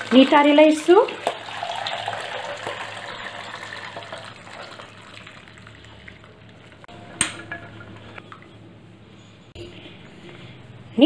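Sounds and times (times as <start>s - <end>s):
water pouring into a colander: 0.0s - 6.9s
water draining and trickling: 0.0s - 8.5s.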